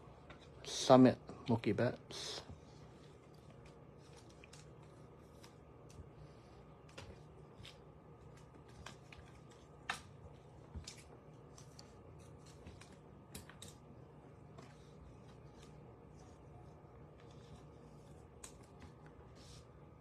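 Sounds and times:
trading cards clicking and rustling: 3.0 - 15.9, 17.1 - 19.1.

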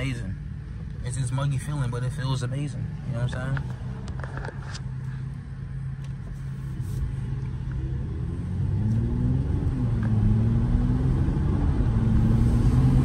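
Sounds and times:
car engine accelerating: 7.3 - 13.0.

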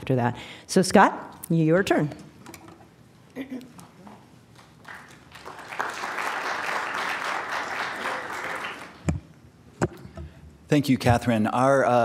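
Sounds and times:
audience applauding: 4.6 - 9.1.

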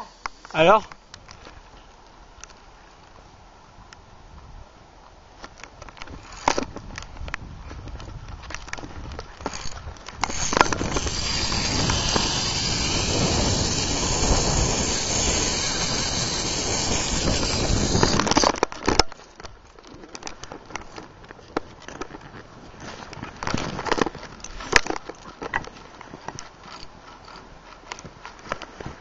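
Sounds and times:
zip line pulley whirring on cable: 0.0 - 0.6, 9.4 - 18.6
pulley clack: 9.4 - 19.2.

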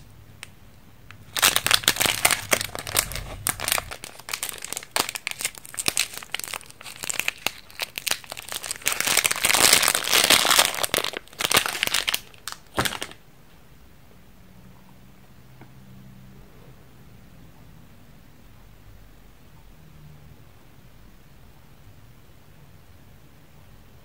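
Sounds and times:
plastic wrapper crinkling and tearing: 1.1 - 13.2.

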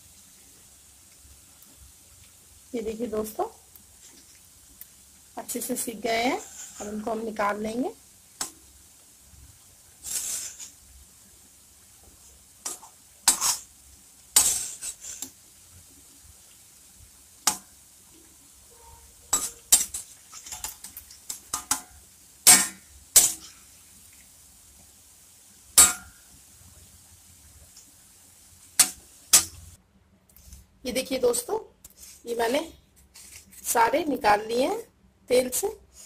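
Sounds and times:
faint frying sizzle: 0.0 - 36.0
metal spoon clanking against metal pan: 19.3 - 20.8, 25.8 - 26.2.

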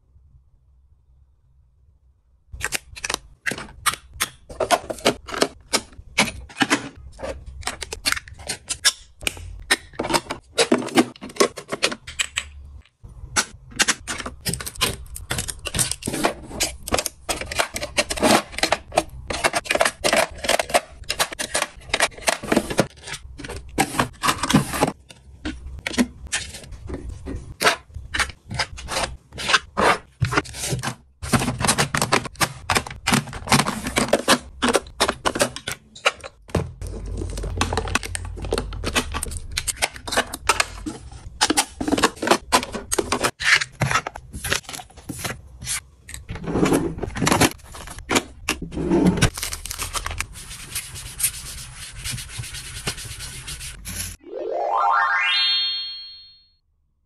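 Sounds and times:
rubbing and scraping: 50.3 - 54.2.

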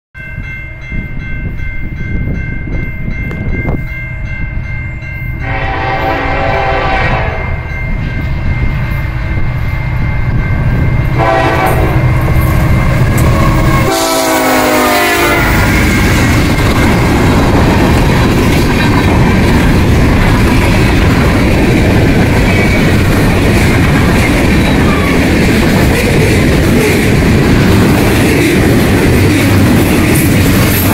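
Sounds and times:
crossing bell ringing: 0.2 - 30.9
freight train rumbling past: 0.2 - 30.9
locomotive horn blasts: 5.4 - 7.6, 11.2 - 12.2, 13.2 - 15.8.

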